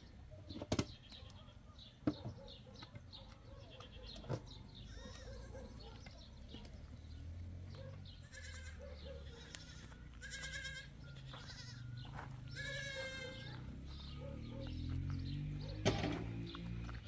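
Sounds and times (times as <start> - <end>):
goats bleating: 8.2 - 13.6.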